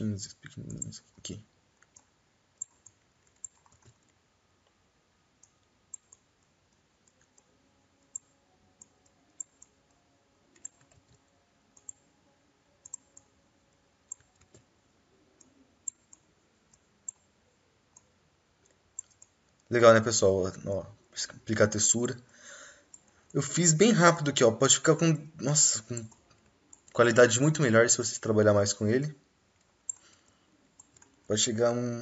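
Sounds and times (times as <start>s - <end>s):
computer mouse clicks: 0.4s - 4.8s, 5.4s - 12.2s, 12.8s - 13.4s, 14.0s - 14.7s, 15.3s - 19.7s, 22.9s - 23.4s, 26.0s - 27.0s, 29.6s - 31.3s.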